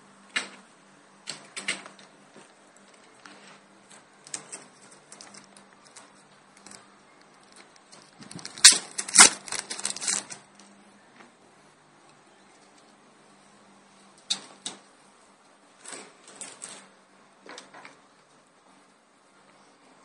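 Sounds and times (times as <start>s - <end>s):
plastic parts clicking: 3.9s - 10.7s
plastic wrapping crinkling and tearing: 4.3s - 10.7s.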